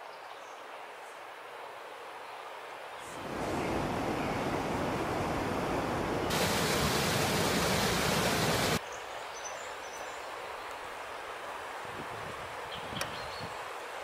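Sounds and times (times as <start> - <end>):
quiet woodland background: 0.0 - 14.0
water rushing over rocks: 3.2 - 8.8.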